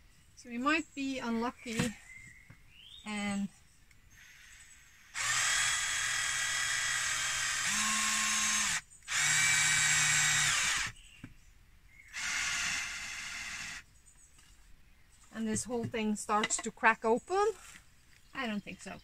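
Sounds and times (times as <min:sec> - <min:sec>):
cordless drill driving screws: 0:05.1 - 0:11.0, 0:12.1 - 0:13.8.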